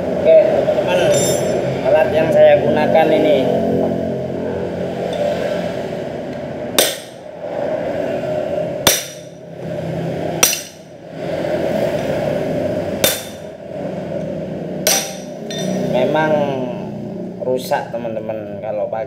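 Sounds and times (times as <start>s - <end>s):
hammering metal on metal: 1.1s - 1.6s, 6.8s - 7.3s, 8.8s - 9.4s, 10.4s - 11.0s, 13.0s - 13.6s, 14.8s - 16.1s
steady hum: 3.5s - 16.0s.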